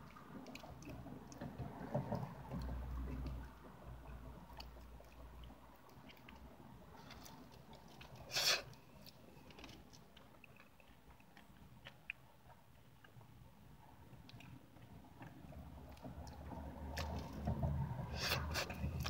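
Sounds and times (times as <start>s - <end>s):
wet chewing: 4.0s - 13.4s, 14.1s - 17.5s.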